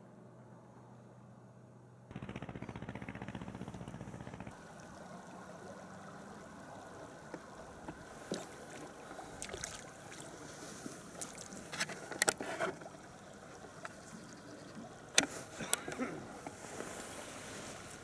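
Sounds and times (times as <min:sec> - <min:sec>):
river water lapping: 0:04.6 - 0:18.0
small splashes: 0:07.8 - 0:14.2.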